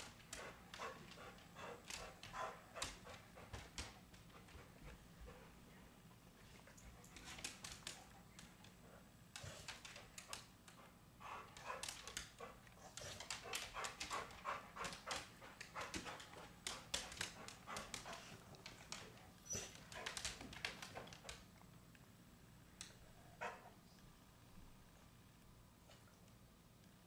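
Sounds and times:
dog panting: 0.0s - 21.5s.

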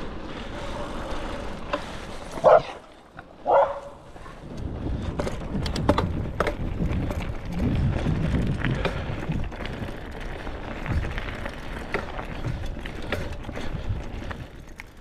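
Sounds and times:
bicycle tyres rumbling on dirt: 0.0s - 15.0s
bike clicks and rattles: 0.0s - 15.0s
wind on microphone: 4.2s - 11.5s.

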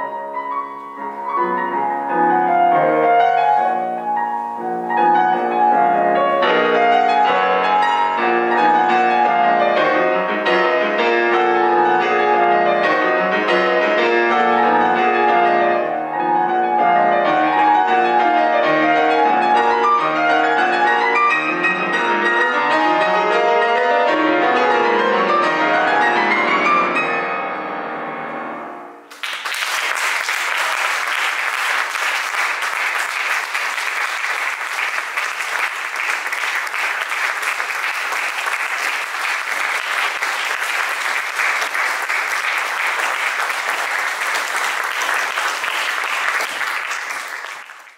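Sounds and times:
audience applause: 29.1s - 47.9s.

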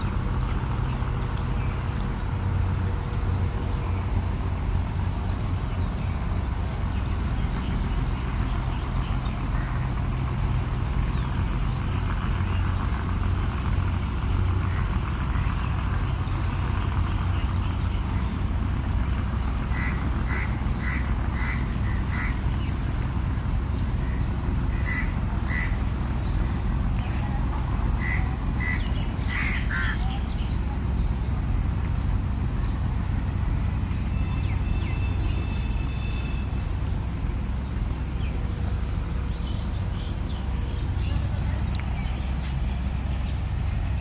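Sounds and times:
low background rumble: 0.0s - 44.0s
crow cawing: 19.7s - 22.4s, 24.7s - 25.8s, 28.0s - 30.0s.

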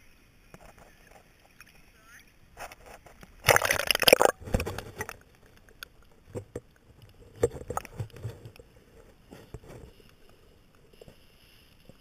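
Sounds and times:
water splashing: 0.6s - 8.9s.

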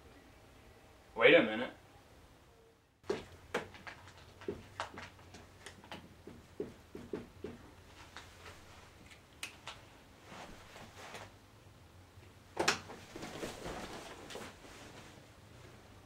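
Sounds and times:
clicks and scuffs at whiteboard: 3.0s - 9.8s
rustling: 3.0s - 11.4s, 12.8s - 16.0s.

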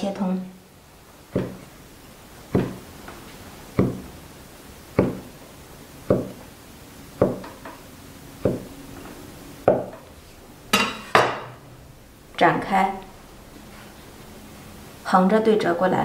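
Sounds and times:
cleaver chopping on wooden board: 1.3s - 1.6s, 2.5s - 2.8s, 3.8s - 4.1s, 5.0s - 5.3s, 6.1s - 6.4s, 7.2s - 7.5s, 8.4s - 8.7s.

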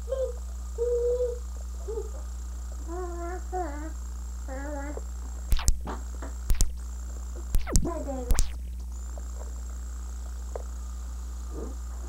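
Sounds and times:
steady low hum: 0.0s - 12.0s
sharp camcorder clicks: 5.5s - 5.9s, 6.5s - 6.8s, 7.6s - 8.6s.

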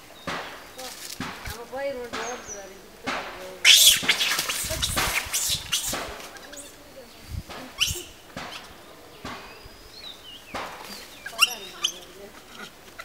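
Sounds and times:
crashing through dry leaves: 0.4s - 1.8s, 3.4s - 6.5s
monkeys screeching: 3.6s - 6.8s, 7.7s - 8.7s, 11.1s - 12.8s.

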